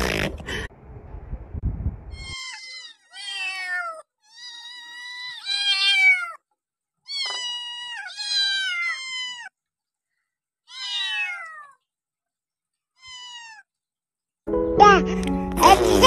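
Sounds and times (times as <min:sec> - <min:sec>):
cat meowing: 0:02.1 - 0:06.4, 0:07.0 - 0:09.6, 0:10.6 - 0:11.8, 0:13.0 - 0:13.7.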